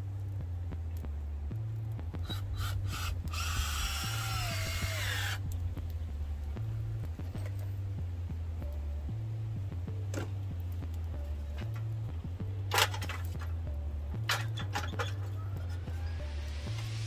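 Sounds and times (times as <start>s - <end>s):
electronic music with bass: 0.0s - 17.0s
power drill whining: 2.6s - 5.4s.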